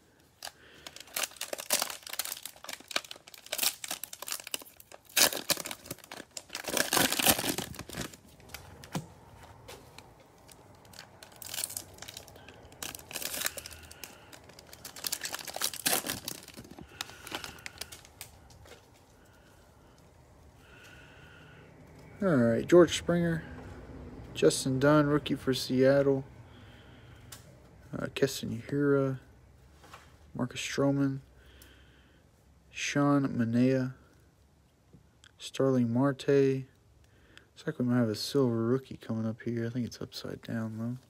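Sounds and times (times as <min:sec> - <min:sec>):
plastic wrapper crinkling: 0:00.3 - 0:20.0.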